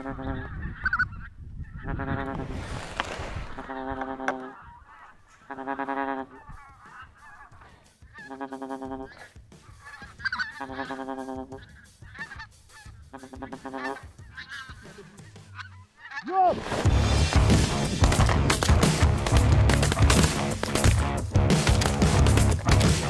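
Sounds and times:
flock of geese honking: 0:00.0 - 0:02.4, 0:03.6 - 0:16.4
goose honking: 0:00.0 - 0:02.4, 0:03.6 - 0:16.4.

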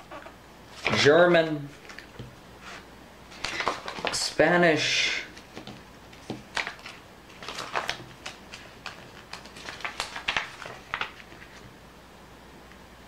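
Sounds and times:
paper pages rustling: 0:00.0 - 0:04.4, 0:05.3 - 0:11.7.

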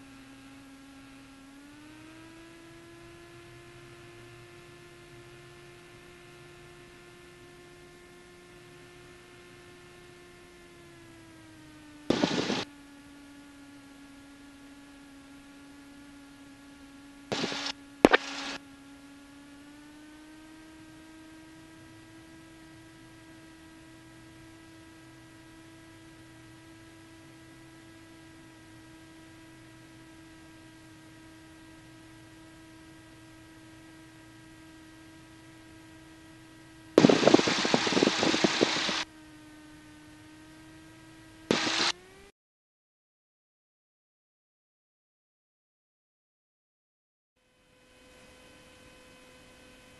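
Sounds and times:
aircraft engine humming: 0:09.0 - 0:42.0
radio static bursts: 0:12.1 - 0:12.6, 0:17.3 - 0:18.6, 0:37.0 - 0:39.0, 0:41.5 - 0:41.9.

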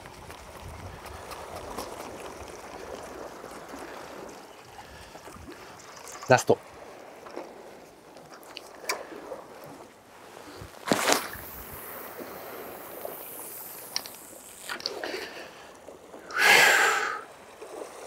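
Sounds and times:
fishing rod swish: 0:10.8 - 0:15.1
fishing line hissing off reel: 0:10.9 - 0:15.6.

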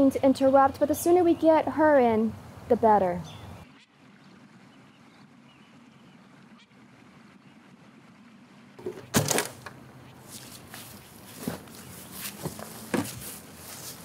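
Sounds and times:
rustling: 0:08.8 - 0:14.0.

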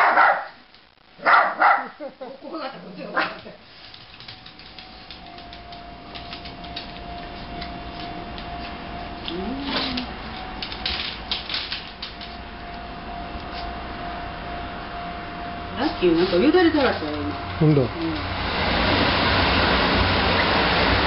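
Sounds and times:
dog claws clicking on wood floor: 0:03.4 - 0:08.5, 0:09.2 - 0:12.4
dog whining: 0:09.1 - 0:10.4.

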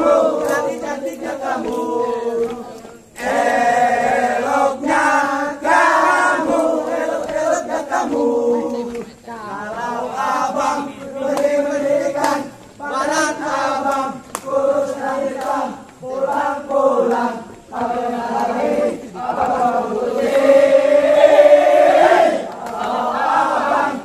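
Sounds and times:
men singing and chanting: 0:00.0 - 0:24.0.

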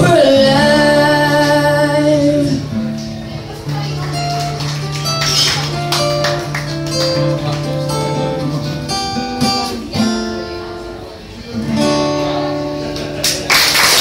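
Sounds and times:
amplified acoustic guitar playing: 0:00.0 - 0:13.5.

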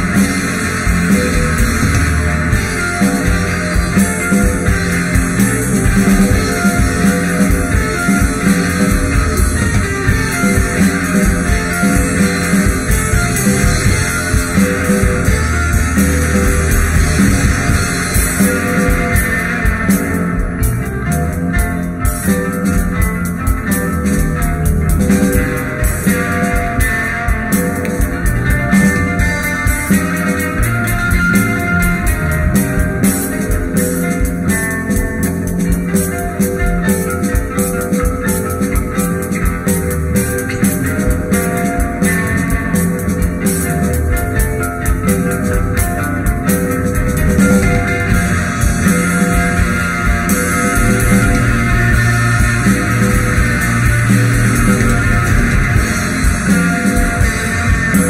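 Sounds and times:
rock band playing: 0:00.0 - 0:58.0
steady drum beat: 0:00.0 - 0:58.0
sustained guitar notes: 0:00.0 - 0:58.0.

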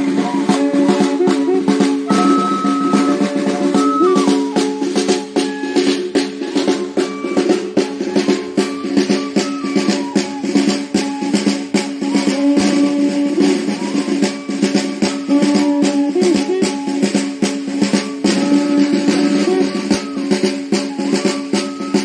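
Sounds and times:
cane flute melody: 0:00.0 - 0:22.0
rattling percussion: 0:00.0 - 0:22.0
steady drum beat: 0:00.0 - 0:22.0.

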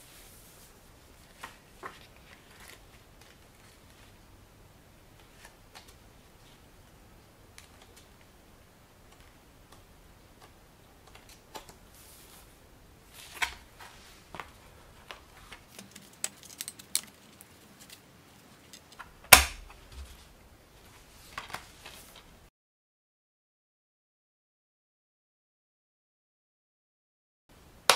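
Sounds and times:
paper rustling: 0:00.0 - 0:04.2, 0:05.2 - 0:06.6, 0:10.4 - 0:19.1, 0:19.7 - 0:22.3.

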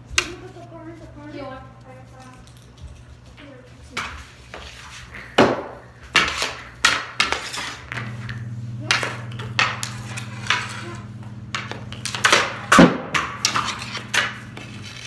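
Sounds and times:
steady low hum: 0:00.0 - 0:15.0
hockey stick and puck clacking: 0:04.0 - 0:15.0.

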